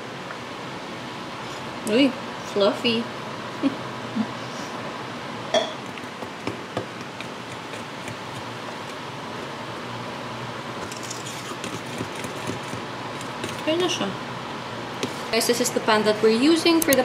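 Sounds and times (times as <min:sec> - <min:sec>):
fork tapping and scraping bowl: 0:05.6 - 0:09.0, 0:11.6 - 0:13.7.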